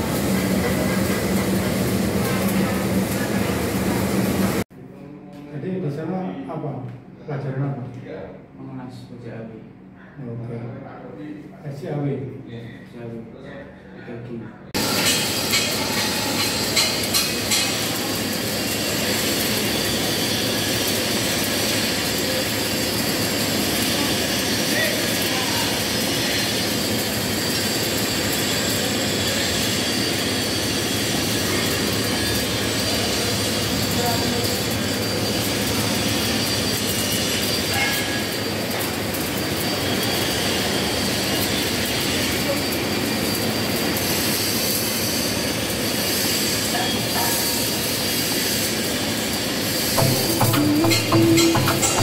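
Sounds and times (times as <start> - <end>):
welding arc crackling hiss: 14.8 - 52.0.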